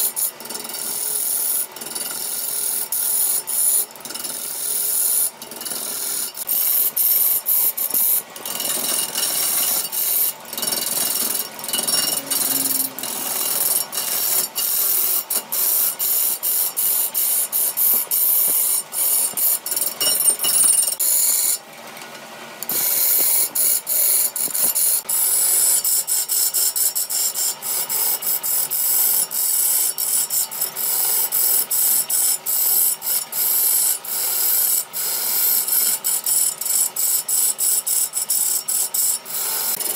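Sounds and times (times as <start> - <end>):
lathe tool scraping wood: 0.0 - 21.6.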